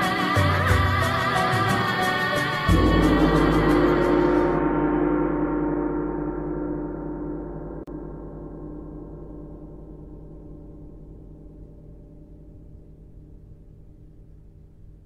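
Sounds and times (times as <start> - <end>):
deep gong ringing: 2.7 - 14.5.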